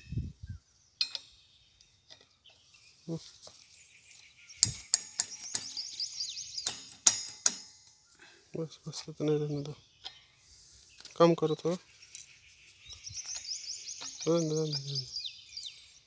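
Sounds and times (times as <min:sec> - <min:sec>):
spanner clicking on metal fittings: 0:06.6 - 0:07.9
thin chirps: 0:09.3 - 0:16.0.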